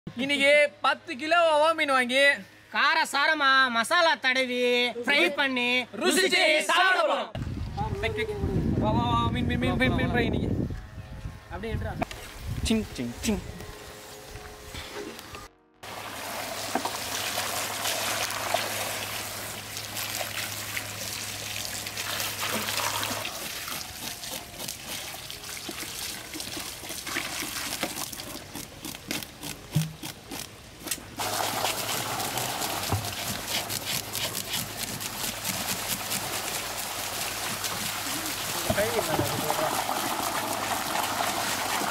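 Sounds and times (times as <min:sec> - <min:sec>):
water trickling and splashing: 0:15.8 - 0:28.5, 0:31.2 - 0:41.9.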